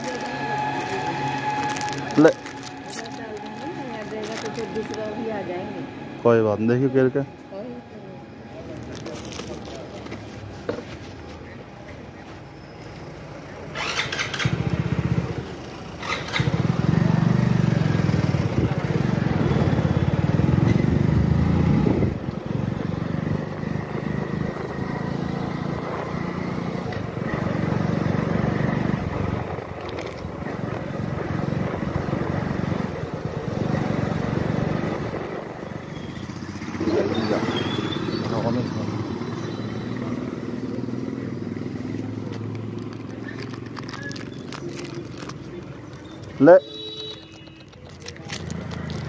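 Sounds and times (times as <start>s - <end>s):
motorcycle engine running: 13.5s - 47.0s.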